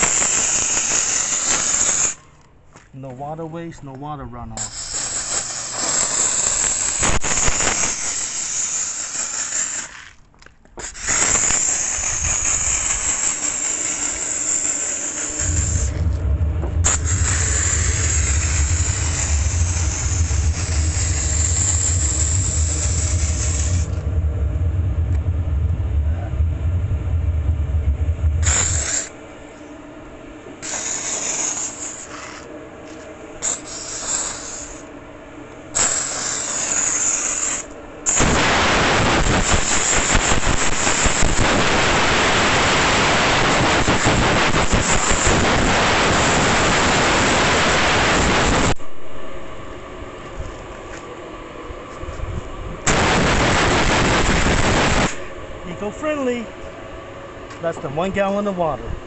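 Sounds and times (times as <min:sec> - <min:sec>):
steam cleaner hissing: 0:00.0 - 0:02.2, 0:04.6 - 0:10.0, 0:10.8 - 0:24.2, 0:28.2 - 0:29.2, 0:30.6 - 0:32.5, 0:33.4 - 0:34.9, 0:35.7 - 0:48.8, 0:52.9 - 0:55.2
low steady hum: 0:15.2 - 0:36.3, 0:41.6 - 0:59.0.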